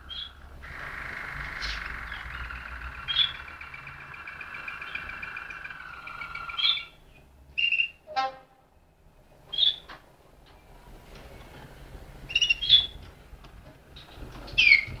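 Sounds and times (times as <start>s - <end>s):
canary singing trill: 0.0s - 8.0s, 12.3s - 13.0s
short bird notes: 0.0s - 8.0s.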